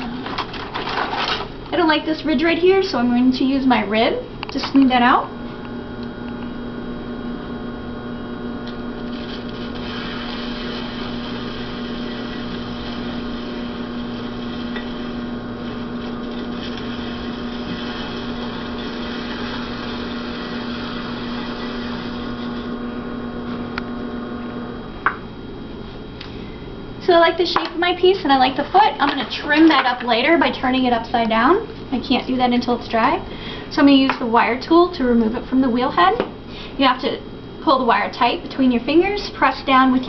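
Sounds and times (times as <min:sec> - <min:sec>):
potter's wheel motor humming: 0:05.2 - 0:25.2.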